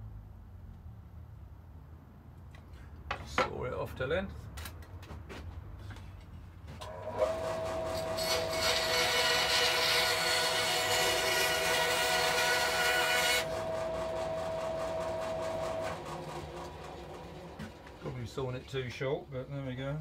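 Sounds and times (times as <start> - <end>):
saw blade cutting wood: 6.8 - 17.8
bandsaw motor humming: 6.8 - 18.1.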